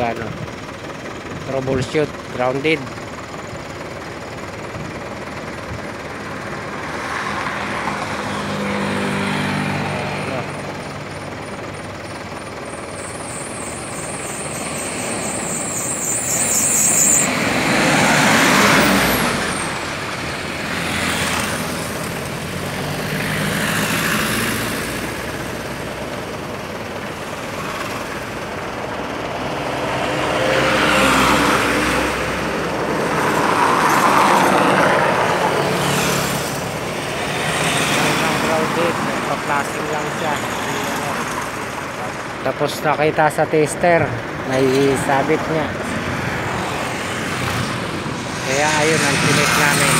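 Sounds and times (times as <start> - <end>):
steady traffic hum: 0.0 - 49.9
vehicles passing close by: 0.0 - 49.9.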